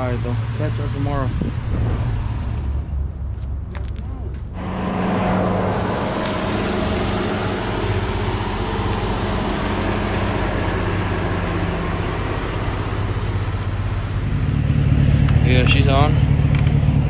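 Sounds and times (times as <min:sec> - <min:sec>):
pickup engine idling: 0:00.0 - 0:17.0.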